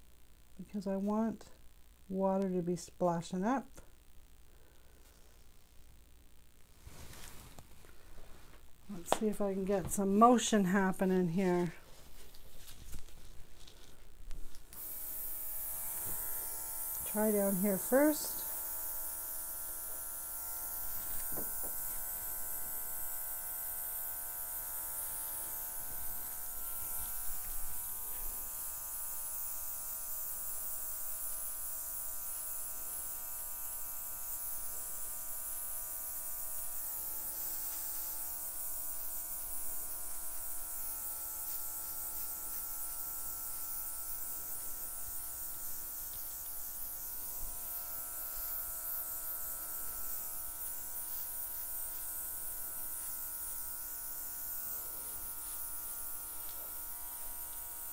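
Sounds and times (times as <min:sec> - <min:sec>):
airbrush motor buzzing: 0:14.7 - 0:57.9.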